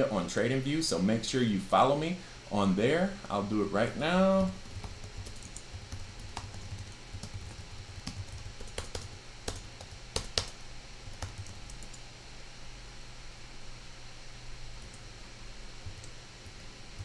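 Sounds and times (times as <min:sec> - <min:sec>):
typing on keyboard: 0:04.4 - 0:12.0.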